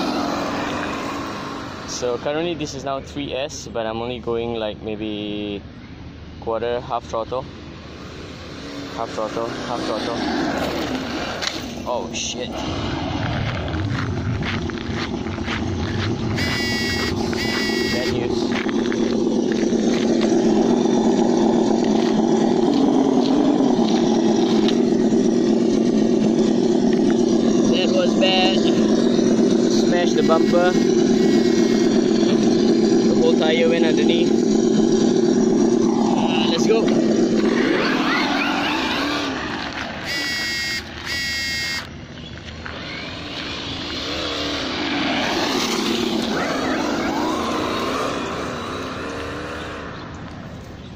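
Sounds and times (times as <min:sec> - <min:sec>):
simulated engine idle drone: 0:11.4 - 0:44.9
high-pitched tones: 0:16.3 - 0:18.4, 0:30.1 - 0:32.1, 0:40.0 - 0:41.9.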